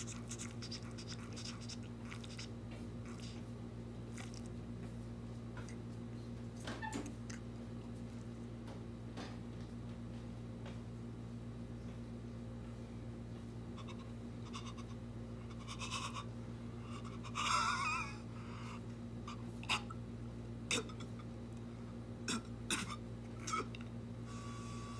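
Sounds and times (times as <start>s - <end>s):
mouth sounds: 0.0s - 3.4s, 20.7s - 21.2s
steady low hum: 0.0s - 24.9s
cartoon baby gagging: 17.3s - 18.2s.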